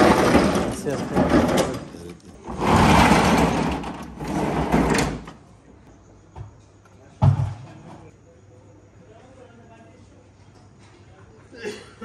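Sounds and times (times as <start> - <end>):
sliding door scraping rattle: 0.0 - 5.4.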